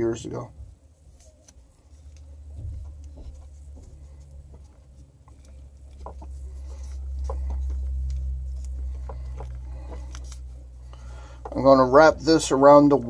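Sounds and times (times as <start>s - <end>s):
steady low hum: 0.0s - 13.0s
tape crackles and squeaks: 1.0s - 11.0s.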